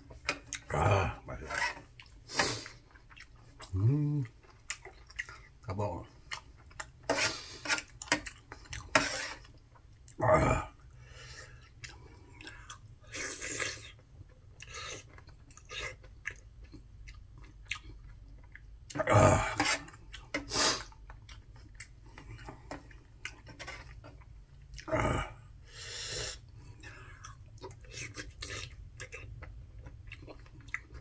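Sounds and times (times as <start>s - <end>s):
person chewing with mouth clicks: 0.2s - 0.8s, 1.5s - 10.2s, 11.4s - 24.9s, 26.4s - 31.0s
loud mouth noises: 3.7s - 4.3s.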